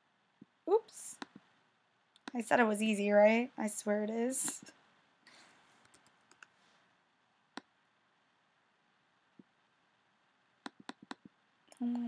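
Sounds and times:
computer mouse clicks: 0:01.2 - 0:01.5, 0:05.8 - 0:06.5, 0:10.6 - 0:11.3.

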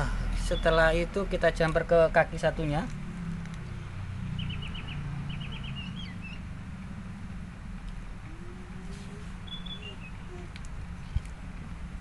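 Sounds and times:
low steady hum: 0:00.0 - 0:12.0
small bird chirping: 0:03.5 - 0:06.5, 0:08.3 - 0:11.2.

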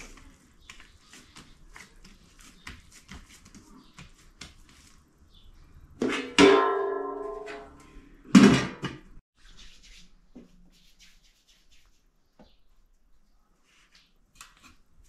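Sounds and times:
metal cover clanging on basin: 0:06.0 - 0:07.8.

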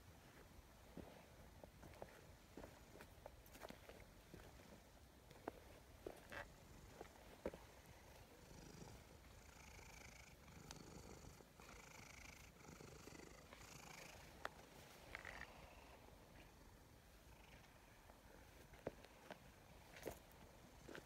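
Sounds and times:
cat purring: 0:06.3 - 0:18.5.

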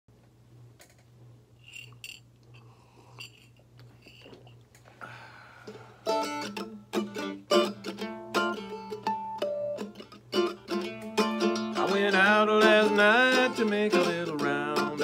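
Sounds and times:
mandolin picking: 0:06.0 - 0:15.0.

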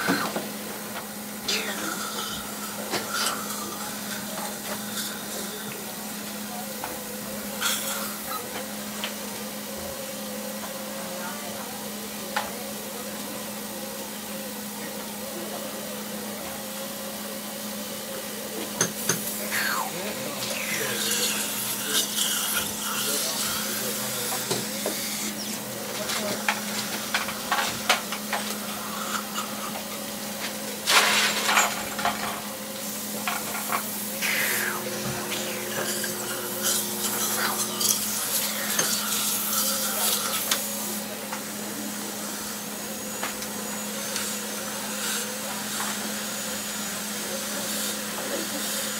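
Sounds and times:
equipment hum and hiss: 0:00.0 - 0:48.9
steady hum: 0:19.1 - 0:25.6, 0:30.9 - 0:41.0
hiss: 0:34.1 - 0:40.9
short falling whine: 0:34.2 - 0:37.8.

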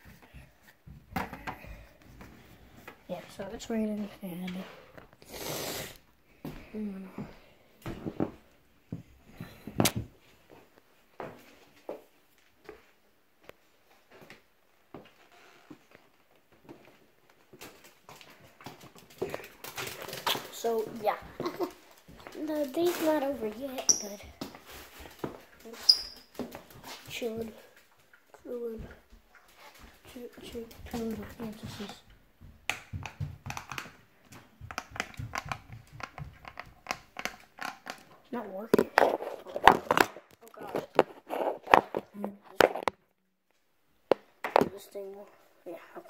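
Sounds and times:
footsteps: 0:06.4 - 0:37.1
plastic crinkling and rustling: 0:16.0 - 0:28.3.

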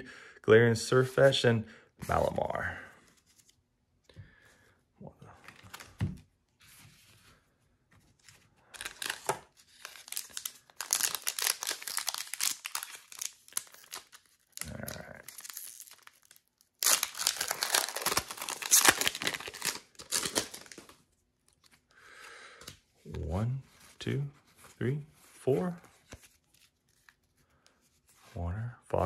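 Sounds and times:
foil wrapper tearing and crinkling: 0:08.8 - 0:21.0.

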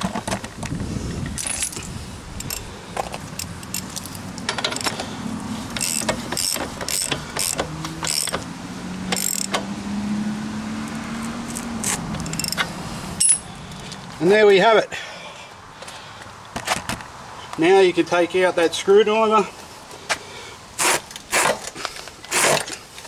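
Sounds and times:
socket ratchet clicking: 0:01.4 - 0:02.7, 0:03.4 - 0:05.0, 0:05.8 - 0:08.4, 0:09.1 - 0:09.6, 0:11.5 - 0:13.4
metal clinking: 0:11.9 - 0:13.5.

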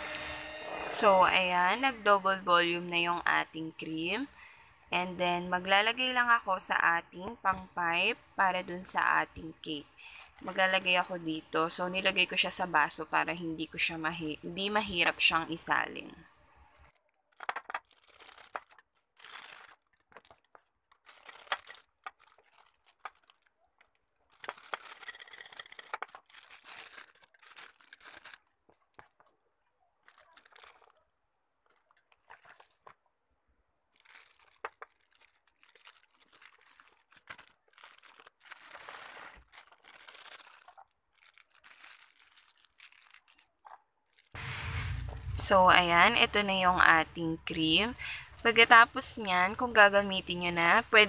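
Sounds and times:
plastic bag crinkling: 0:15.7 - 0:33.0, 0:33.8 - 0:51.0.

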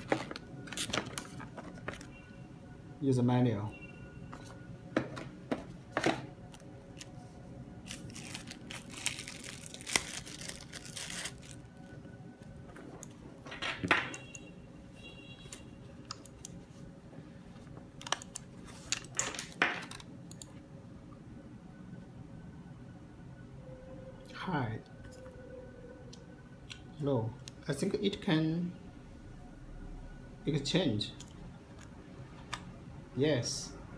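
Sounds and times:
paper and packaging rustling: 0:00.0 - 0:02.2, 0:04.4 - 0:13.3.

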